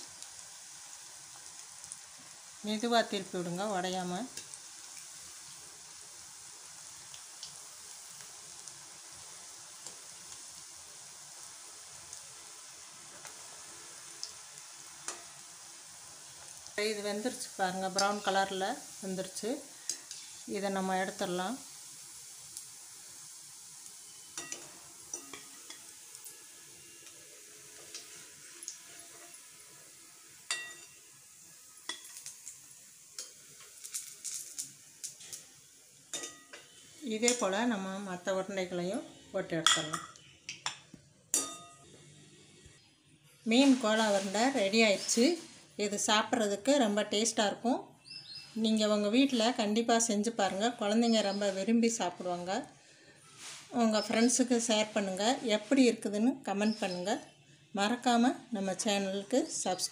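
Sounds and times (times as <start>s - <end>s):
deep-frying sizzle: 0.0s - 59.9s
metal spoon clinking on pan: 24.3s - 25.9s, 30.5s - 31.0s, 31.9s - 32.2s, 36.1s - 36.7s, 39.6s - 41.8s.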